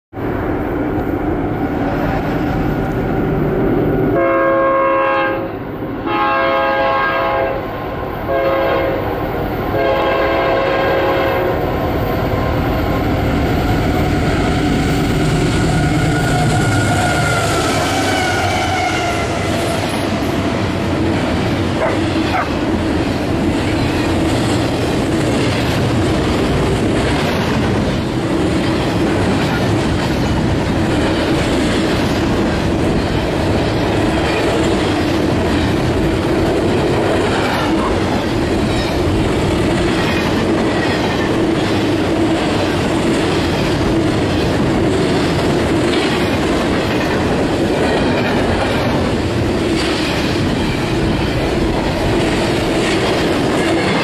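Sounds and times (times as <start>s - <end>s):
train air horn blasts: 4.1s - 7.7s, 8.3s - 9.1s, 9.8s - 11.6s, 15.4s - 19.8s
train wheels clattering on rails: 8.2s - 54.0s.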